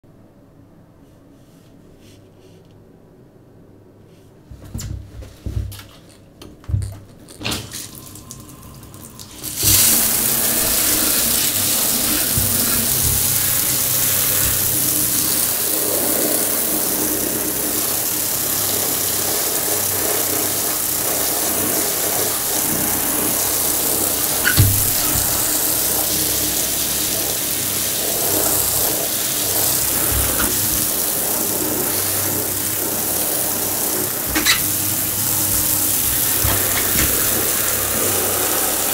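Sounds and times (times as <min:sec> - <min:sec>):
shower spraying water: 0:04.8 - 0:38.9.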